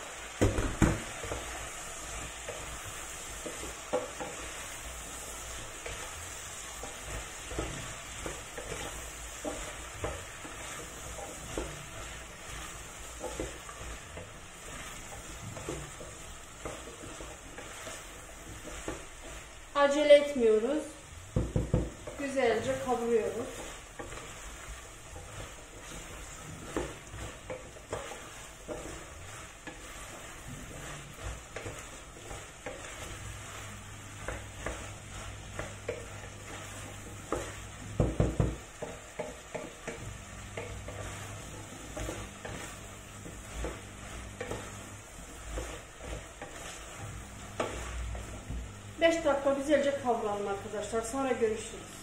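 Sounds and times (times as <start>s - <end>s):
food sizzling: 0.0s - 52.0s
wooden spoon scraping in saucepan: 0.0s - 52.0s
spoon knocking against pot: 21.3s - 22.2s, 37.3s - 40.8s.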